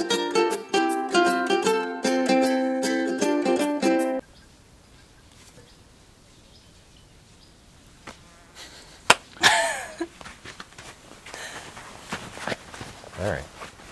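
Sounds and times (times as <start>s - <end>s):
high five hand slap: 9.1s - 9.3s.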